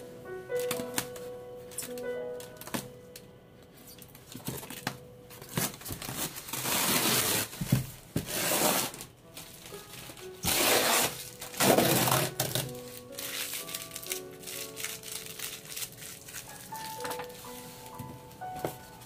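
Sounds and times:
packing tape pulled off foam box: 0:05.4 - 0:09.1, 0:09.7 - 0:18.0.

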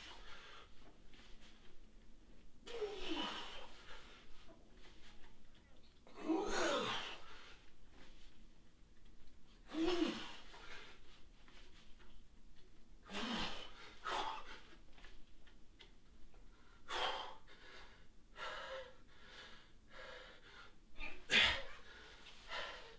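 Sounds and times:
short grunt: 0:06.1 - 0:07.2, 0:13.1 - 0:14.4, 0:21.0 - 0:21.7.

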